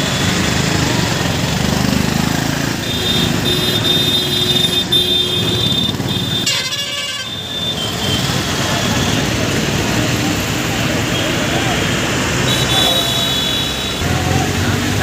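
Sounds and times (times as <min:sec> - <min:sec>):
vehicle horn honking: 0:02.8 - 0:08.5, 0:12.5 - 0:14.0
crowd chatter: 0:07.7 - 0:15.0.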